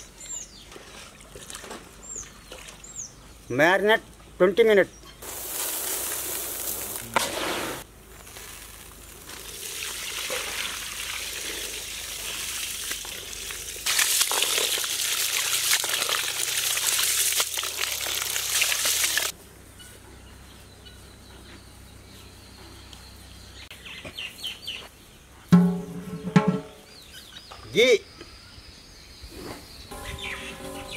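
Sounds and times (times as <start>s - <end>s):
metal pot knocking on stones: 25.5s - 26.8s.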